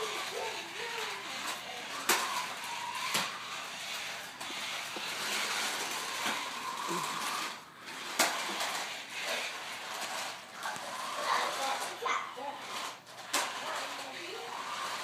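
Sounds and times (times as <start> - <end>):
electric motor whine: 0.0 - 11.9
toy cars whirring on tile: 0.0 - 15.0.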